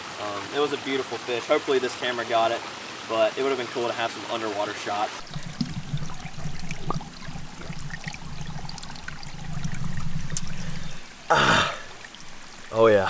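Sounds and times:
water trickling over rocks: 0:00.1 - 0:13.0
man drinking: 0:05.2 - 0:13.0
man gasping: 0:11.3 - 0:12.0.

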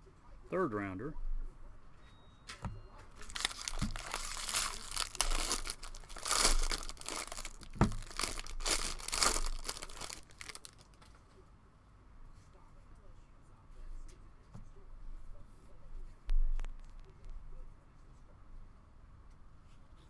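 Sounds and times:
foil wrapper tearing and crinkling: 0:03.2 - 0:11.0.

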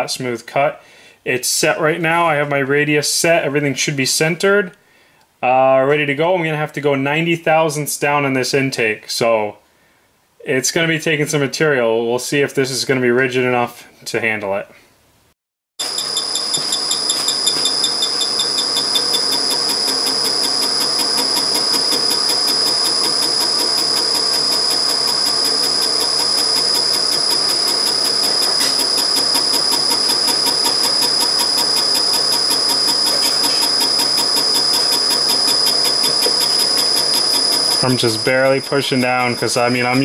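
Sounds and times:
milling machine pulsing whine: 0:15.8 - 0:40.0.

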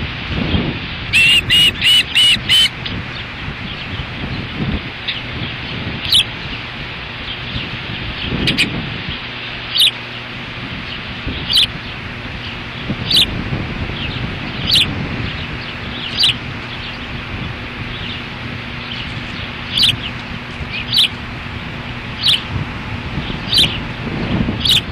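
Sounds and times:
osprey high-pitched chirps: 0:01.2 - 0:02.7.

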